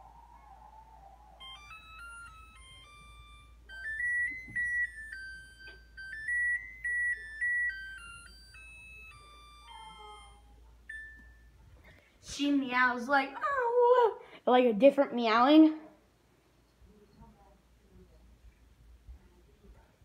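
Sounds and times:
oven timer beeping melody: 0:01.4 - 0:11.6.

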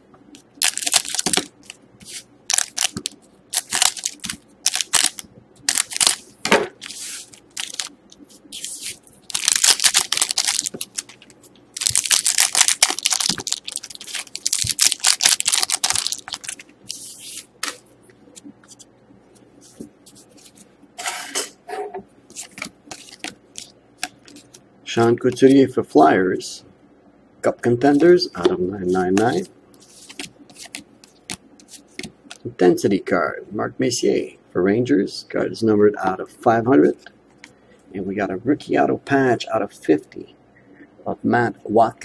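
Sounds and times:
foil wrappers crinkling and tearing: 0:00.6 - 0:01.8, 0:02.5 - 0:07.9, 0:08.6 - 0:17.0.

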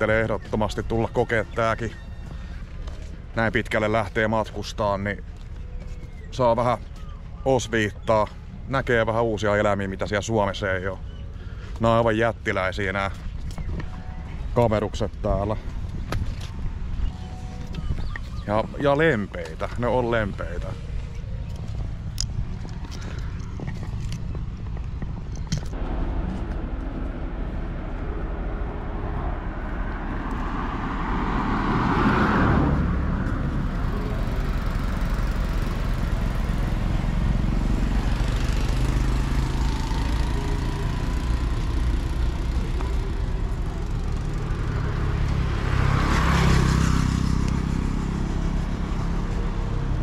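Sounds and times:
vehicles passing: 0:00.0 - 0:50.0
steady low rumble: 0:20.7 - 0:31.6.

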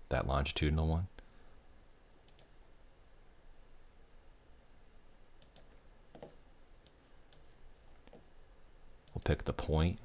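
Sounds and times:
computer mouse clicks: 0:02.3 - 0:02.6, 0:05.4 - 0:08.2, 0:09.0 - 0:09.4.

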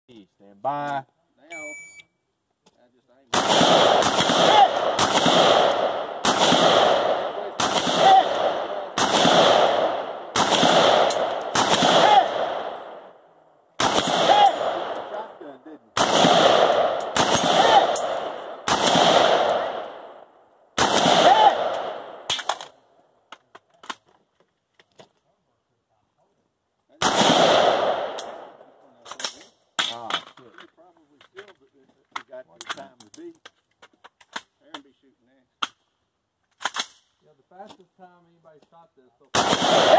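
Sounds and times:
echoing gunshots: 0:03.3 - 0:13.2, 0:13.8 - 0:22.7, 0:27.0 - 0:28.7, 0:39.3 - 0:39.9.

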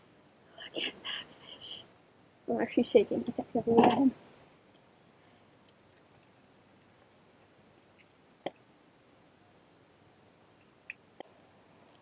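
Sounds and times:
faint clicks: 0:10.5 - 0:12.0.

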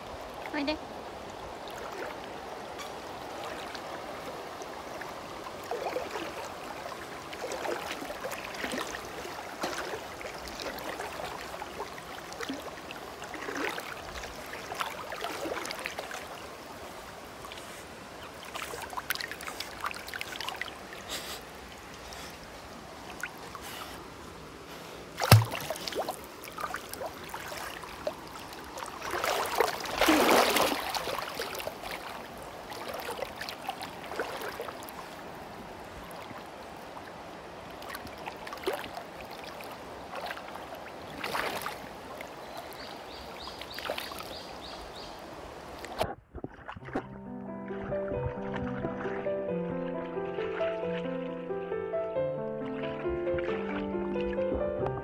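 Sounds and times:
stream rushing: 0:00.0 - 0:46.1, 0:47.2 - 0:55.0
water splashing around swimming dog: 0:05.6 - 0:16.5, 0:25.2 - 0:34.9, 0:37.8 - 0:42.0, 0:45.8 - 0:47.2.

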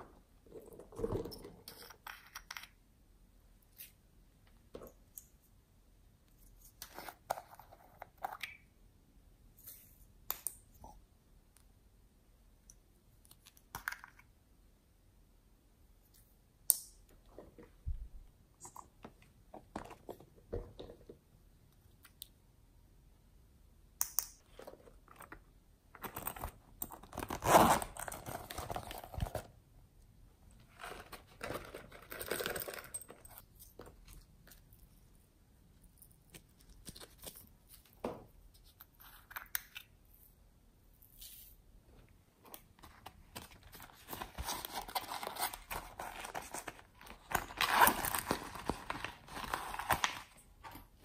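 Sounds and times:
crinkly rustling: 0:42.8 - 0:51.0.

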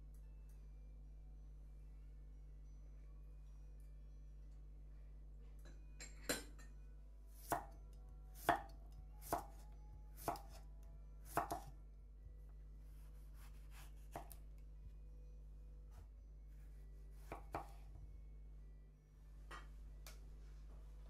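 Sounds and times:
knife cutting through tomato: 0:10.2 - 0:10.6, 0:12.9 - 0:14.4.

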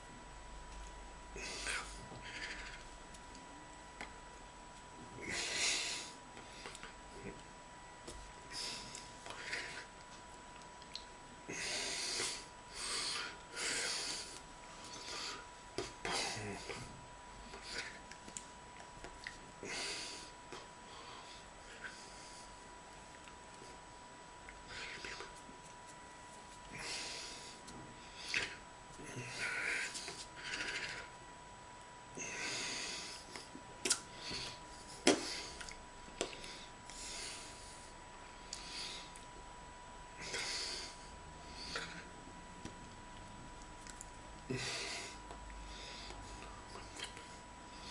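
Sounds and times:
man breathing in puffs: 0:05.2 - 0:07.4, 0:11.5 - 0:18.0, 0:26.5 - 0:31.1, 0:32.2 - 0:39.2, 0:40.2 - 0:42.1, 0:44.5 - 0:47.9.

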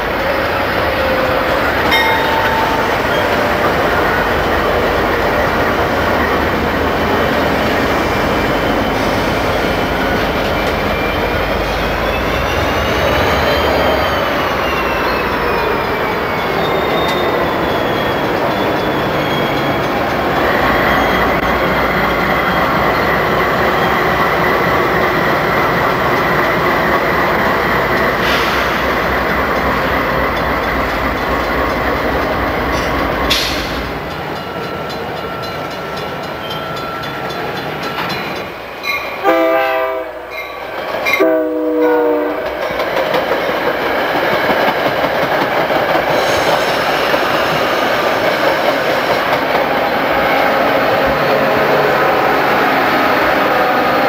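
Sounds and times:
freight train passing: 0:00.0 - 0:54.0
locomotive air horn blasts: 0:39.2 - 0:40.3, 0:41.2 - 0:42.5.

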